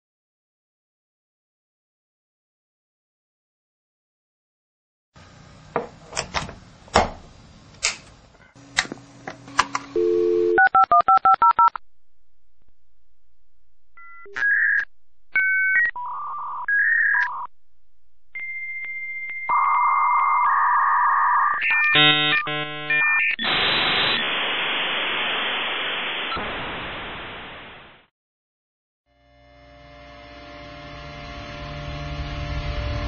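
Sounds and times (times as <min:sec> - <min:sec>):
dial tone: 0:10.0 - 0:11.8
touch-tone dialling beeps: 0:10.0 - 0:11.8.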